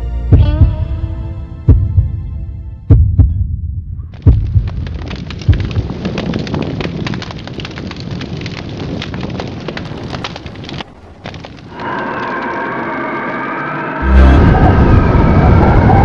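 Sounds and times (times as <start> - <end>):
heavy low thumps: 0.2 - 6.1, 14.0 - 15.2
volcanic eruption rumbling roar: 4.8 - 16.0.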